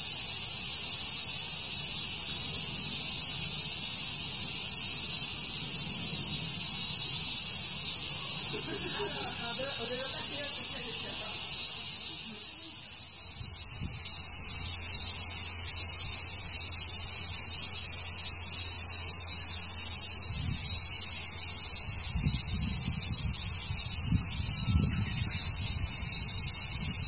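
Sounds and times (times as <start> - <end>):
cicadas droning: 0.0 - 27.0.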